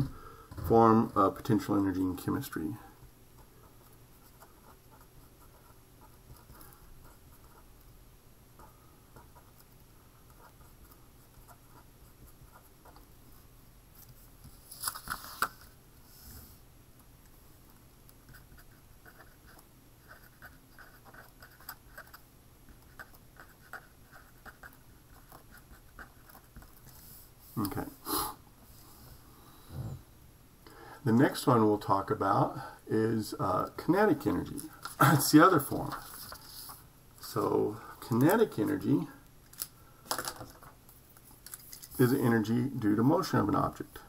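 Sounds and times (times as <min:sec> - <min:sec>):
pen scratching on paper: 0:03.7 - 0:07.7, 0:08.6 - 0:13.1, 0:18.2 - 0:27.0
paper rustle: 0:14.5 - 0:15.8, 0:35.7 - 0:36.8, 0:39.6 - 0:42.2.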